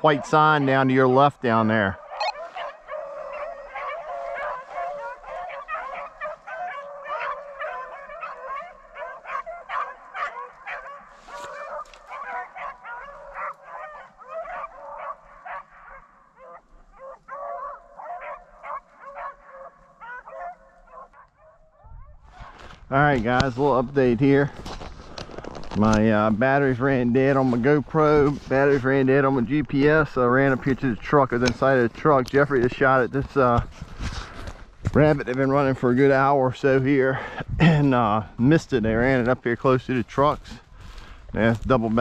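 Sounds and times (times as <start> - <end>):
dogs baying: 0.0 - 22.6.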